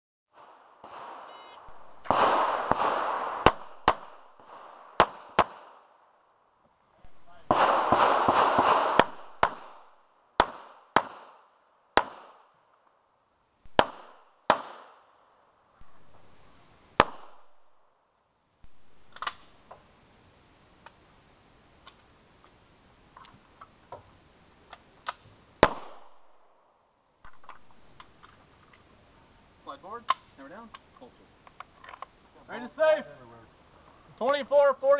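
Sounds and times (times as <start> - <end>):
pistol shots with short echo: 0.4 - 5.8, 7.4 - 12.4, 13.7 - 15.0, 17.0 - 17.6, 25.6 - 26.4.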